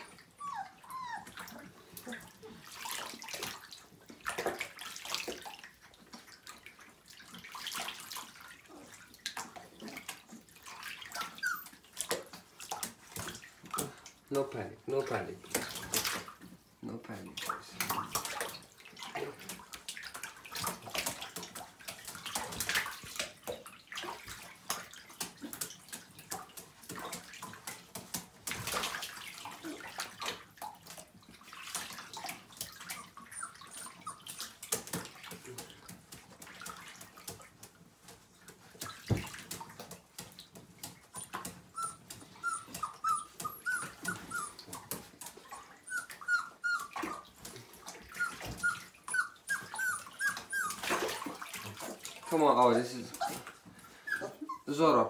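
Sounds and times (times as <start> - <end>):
puppies whimpering: 0.0 - 2.6, 11.1 - 11.9, 32.8 - 34.6, 41.2 - 47.3, 48.0 - 54.8
water splashing in bathtub: 0.0 - 55.0.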